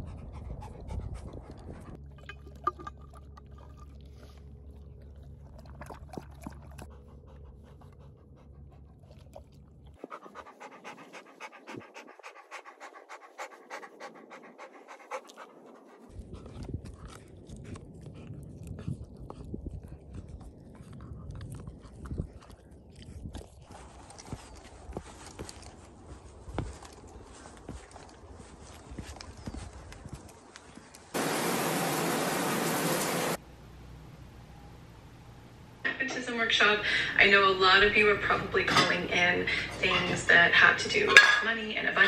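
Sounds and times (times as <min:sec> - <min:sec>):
dog panting: 0:00.0 - 0:02.0, 0:06.2 - 0:29.9.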